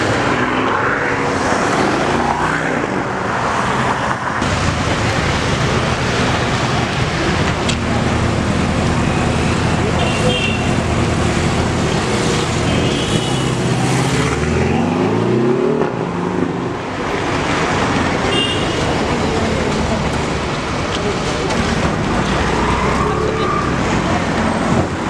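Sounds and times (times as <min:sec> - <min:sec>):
road traffic noise: 0:00.0 - 0:25.0
vehicle engine speeding up: 0:13.6 - 0:16.7.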